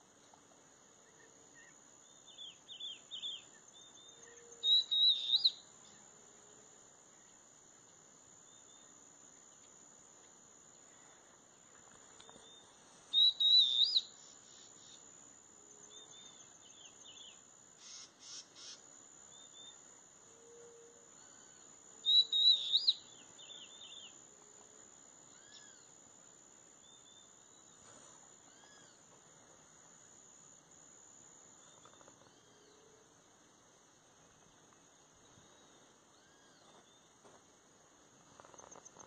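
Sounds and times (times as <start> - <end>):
high insect drone: 0.0 - 39.0
soft bird chirps: 1.0 - 6.1, 10.8 - 15.0, 21.2 - 24.2, 26.8 - 29.1, 34.5 - 37.2
bird warbling whistled notes: 13.1 - 14.1, 22.1 - 23.0
short raspy bird call: 17.8 - 18.8.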